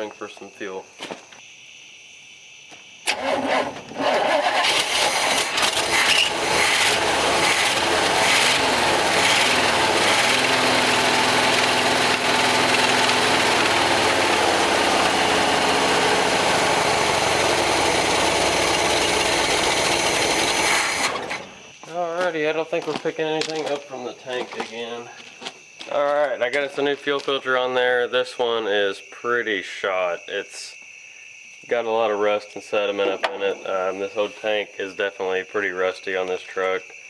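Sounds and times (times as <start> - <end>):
engine cranking and running: 3.1 - 21.6.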